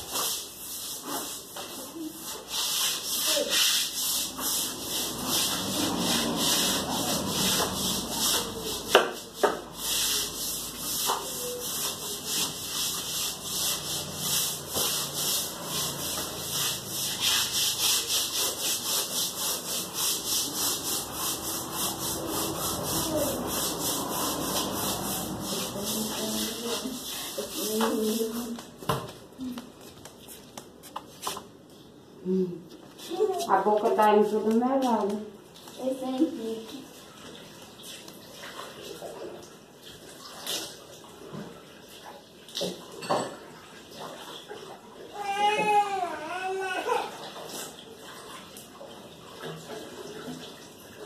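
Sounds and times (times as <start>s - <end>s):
stiff brush scrubbing: 0.0s - 28.7s.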